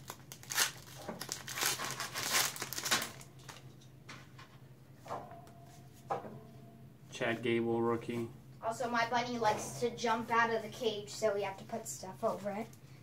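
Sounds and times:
plastic wrapper crinkling: 0.0s - 3.7s.

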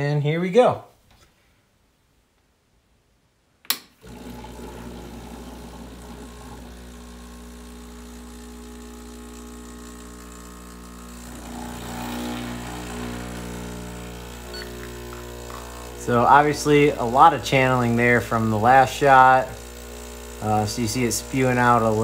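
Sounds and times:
espresso machine pump click: 3.7s - 18.0s
espresso machine pump humming: 4.0s - 22.0s.

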